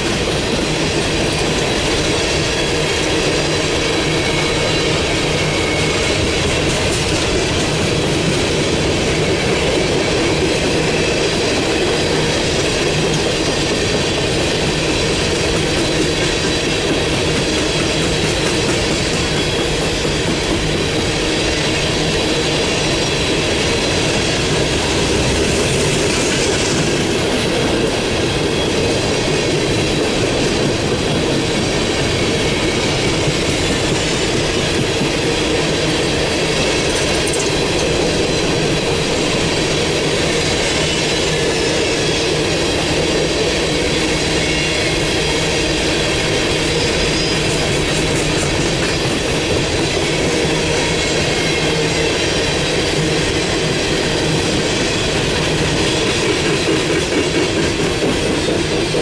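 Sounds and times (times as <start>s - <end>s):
train wheels rumbling on rail: 0.0s - 59.0s
high wheel squeal: 44.1s - 53.2s.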